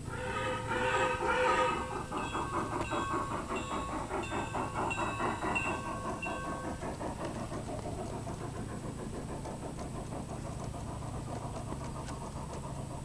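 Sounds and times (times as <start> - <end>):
model train rumbling on bridge: 0.0 - 13.0
wheels clicking on rails: 0.0 - 13.0.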